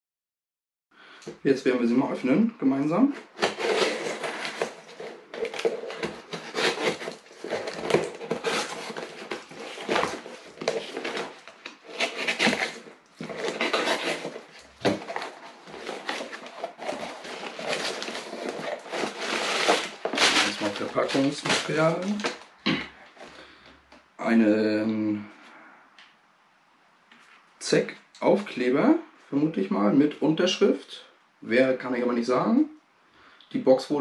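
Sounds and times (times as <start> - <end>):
cardboard rustling and scraping: 3.0 - 22.5.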